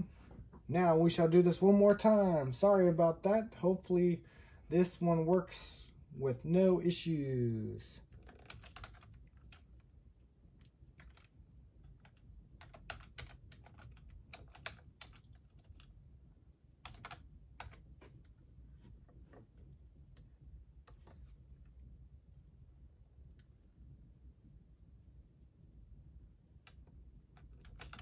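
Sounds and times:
typing on computer keyboard: 0:08.1 - 0:09.8, 0:10.8 - 0:15.9, 0:16.8 - 0:17.8, 0:26.7 - 0:28.0.

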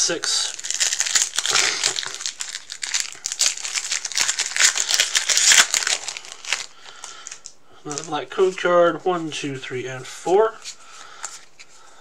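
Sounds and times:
foil wrapper tearing and crinkling: 0:00.5 - 0:08.1.

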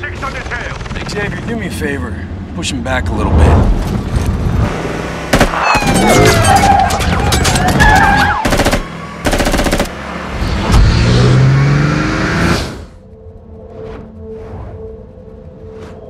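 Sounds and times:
automatic gunfire: 0:05.3 - 0:05.6, 0:08.3 - 0:09.9
car engine revving: 0:08.6 - 0:13.0.

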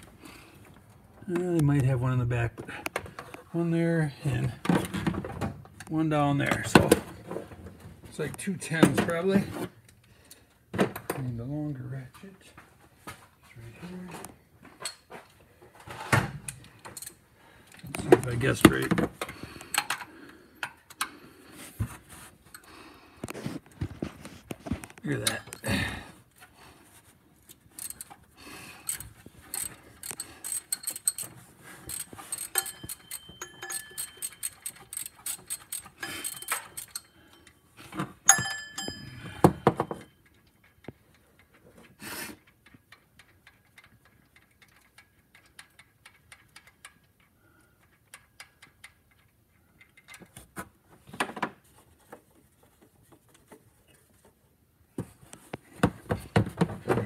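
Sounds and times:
socket ratchet clicking: 0:28.8 - 0:37.1
ringing metal clink: 0:32.3 - 0:34.9, 0:38.3 - 0:40.2
faint clicks and knocks: 0:39.7 - 0:57.0.

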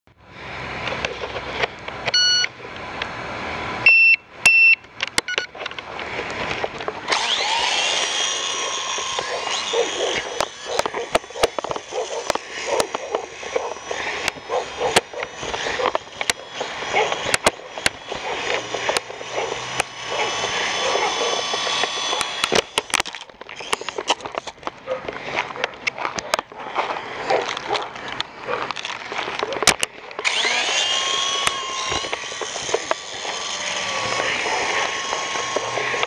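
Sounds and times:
short electronic beeps: 0:02.1 - 0:02.5, 0:03.8 - 0:05.5
sharp clicks: 0:04.5 - 0:24.8
toy helicopter motor whine: 0:06.5 - 0:24.6, 0:29.6 - 0:36.0.

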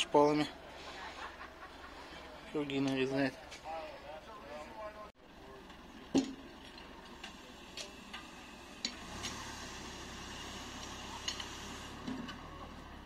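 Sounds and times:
low engine hum: 0:05.2 - 0:13.0.

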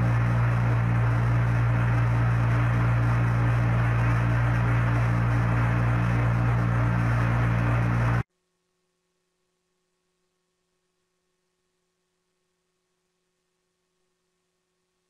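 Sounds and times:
loud low hum with hiss: 0:00.0 - 0:08.2.

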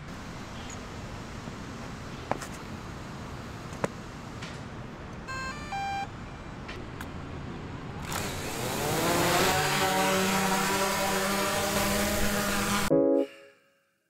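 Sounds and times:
short beeps: 0:05.3 - 0:06.1
drone propeller buzz: 0:08.1 - 0:12.9.

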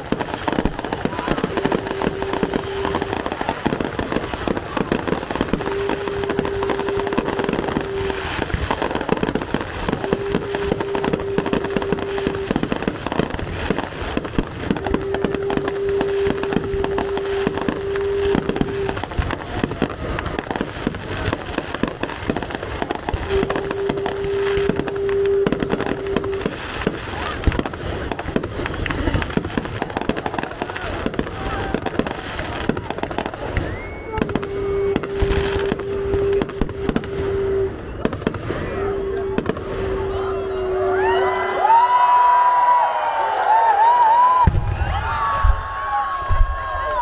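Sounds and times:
fireworks bursting: 0:00.0 - 0:47.0
low held tone: 0:01.2 - 0:13.6, 0:14.4 - 0:20.4, 0:22.1 - 0:26.8, 0:33.4 - 0:41.7.

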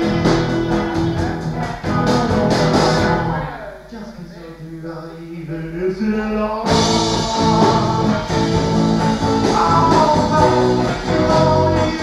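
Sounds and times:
rock band with electric guitar: 0:00.0 - 0:03.6, 0:06.7 - 0:12.0.

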